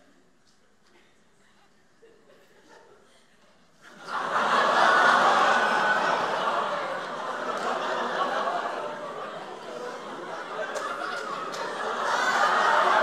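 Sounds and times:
audience laughing: 0:03.8 - 0:13.0.

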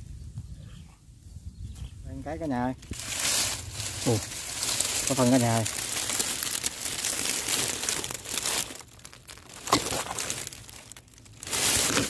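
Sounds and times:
dry leaves and grass rustling: 0:02.3 - 0:12.0
sharp crack: 0:05.0 - 0:12.0.

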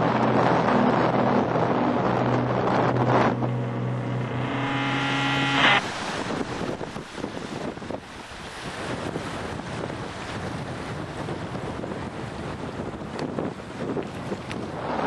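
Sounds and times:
droning background music: 0:00.0 - 0:07.0
rising whoosh: 0:00.0 - 0:07.1
surf washing: 0:00.0 - 0:15.0
wind buffeting the microphone: 0:05.8 - 0:15.0.

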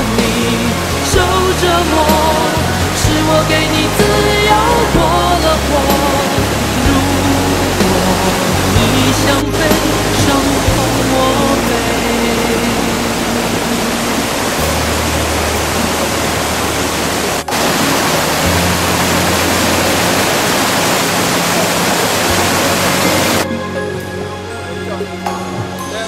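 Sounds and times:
creek water rushing over rocks: 0:00.0 - 0:23.5
soft background music: 0:00.0 - 0:26.0.

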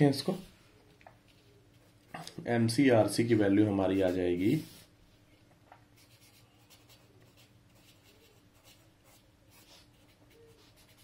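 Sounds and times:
faint steady hum: 0:00.0 - 0:11.0
pencil scratching on paper: 0:06.0 - 0:11.0.

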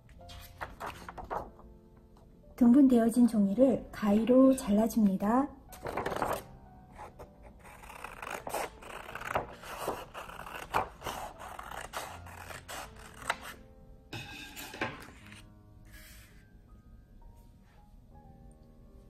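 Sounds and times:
paper rustling: 0:00.3 - 0:01.6, 0:05.8 - 0:06.5, 0:07.9 - 0:13.6
scissors snipping paper: 0:07.1 - 0:13.6.

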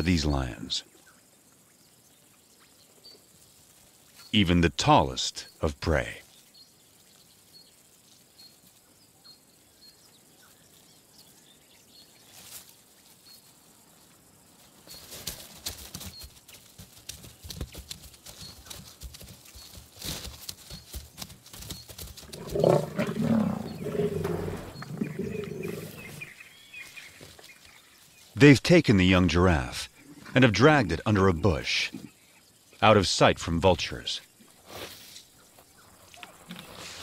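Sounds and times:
lions growling: 0:22.2 - 0:26.4.

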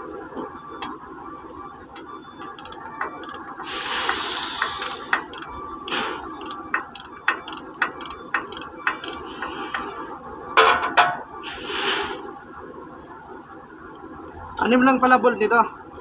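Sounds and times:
ratchet wrench clicking: 0:02.6 - 0:03.4, 0:04.4 - 0:09.2.

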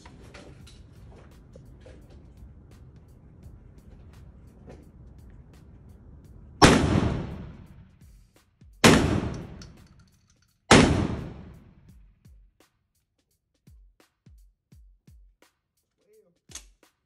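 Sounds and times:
shotgun shots echoing: 0:06.6 - 0:07.8, 0:08.8 - 0:10.0, 0:10.7 - 0:11.7.

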